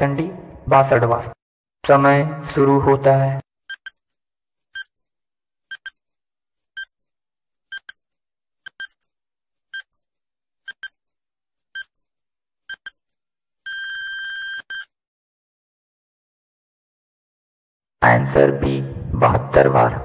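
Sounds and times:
long steady beep: 13.7s - 14.9s
short electronic beeps: 13.7s - 14.9s.

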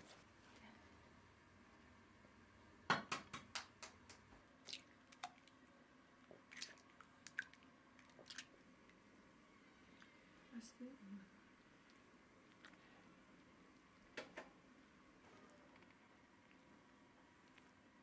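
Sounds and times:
eggshells cracking: 6.2s - 9.0s.

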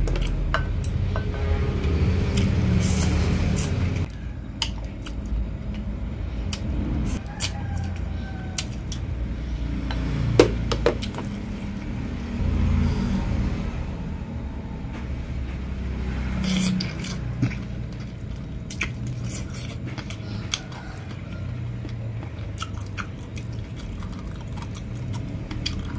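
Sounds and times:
low traffic rumble: 0.0s - 25.9s
noodles slurped and chewed: 16.4s - 25.9s.

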